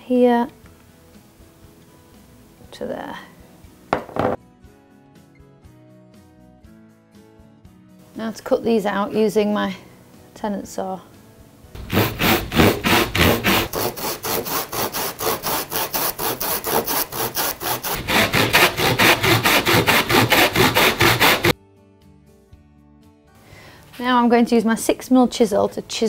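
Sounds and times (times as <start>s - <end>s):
hand saw cutting wood: 11.8s - 21.6s.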